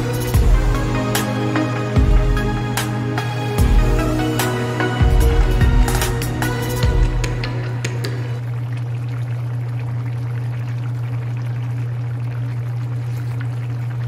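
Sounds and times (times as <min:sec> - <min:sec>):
steady low hum: 0:00.0 - 0:14.0
stew bubbling and fizzing: 0:05.2 - 0:14.0.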